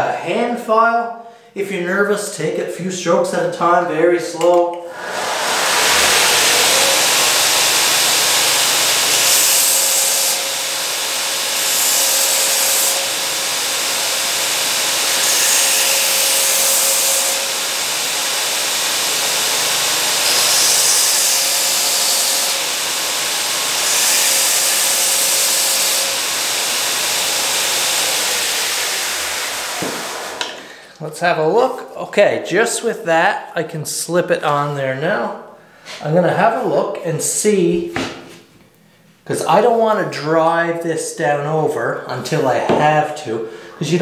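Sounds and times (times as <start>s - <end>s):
wood being ground hiss: 4.9s - 30.6s
belt grinder running: 5.0s - 30.6s.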